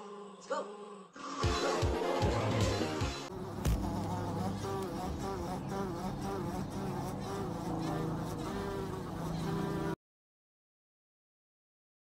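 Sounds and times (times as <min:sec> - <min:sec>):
bumblebee buzzing: 0:03.3 - 0:10.0.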